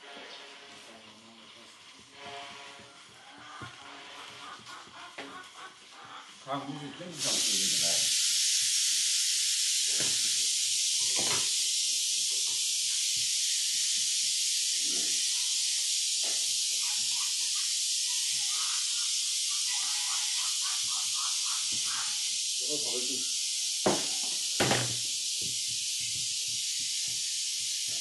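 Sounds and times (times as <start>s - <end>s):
high-pitched hiss: 0.0s - 28.0s.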